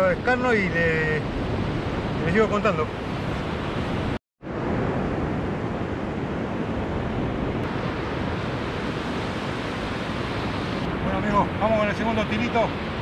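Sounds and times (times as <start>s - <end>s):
wind buffeting microphone: 0.0s - 13.0s
waves breaking on beach: 0.1s - 13.0s.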